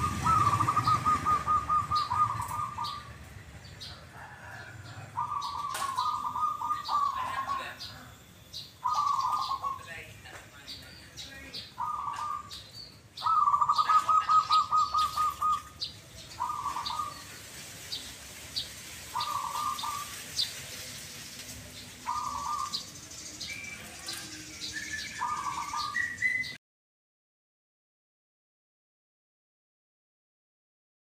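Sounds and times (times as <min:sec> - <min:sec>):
doves cooing: 0:00.0 - 0:08.2, 0:08.8 - 0:10.1, 0:11.5 - 0:26.5.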